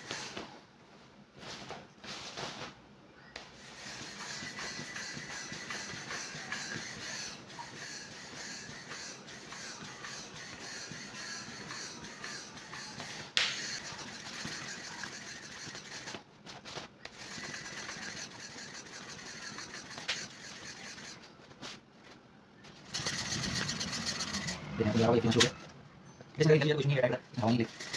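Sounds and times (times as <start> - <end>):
hand air pump pumping: 3.4 - 16.2, 17.1 - 21.3, 22.8 - 24.6, 27.7 - 27.9.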